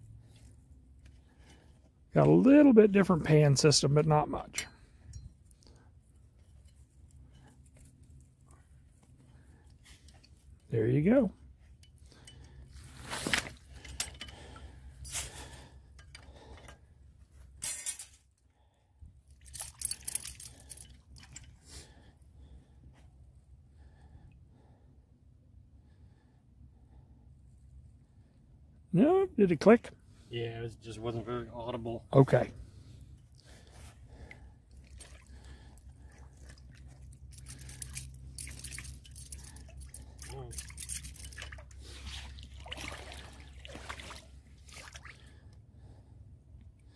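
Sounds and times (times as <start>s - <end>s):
metal trap chain rattling: 13.2s - 16.8s, 17.6s - 18.2s, 19.3s - 21.6s, 37.2s - 42.0s.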